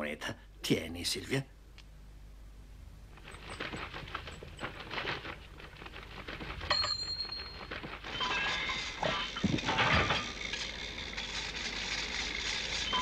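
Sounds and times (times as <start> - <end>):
crackling rustle: 3.1 - 13.0.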